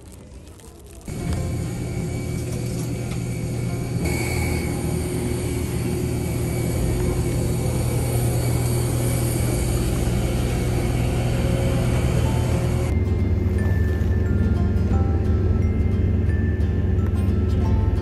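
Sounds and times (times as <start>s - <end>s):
engines rumbling: 0.0s - 18.0s
high-pitched whining tones: 1.1s - 14.5s.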